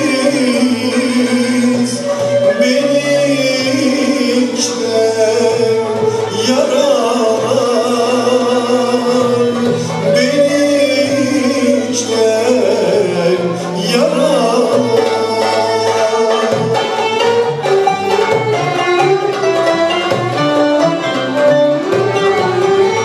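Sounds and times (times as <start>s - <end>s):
man singing: 0.0s - 17.6s
violins and ensemble playing: 0.0s - 23.0s.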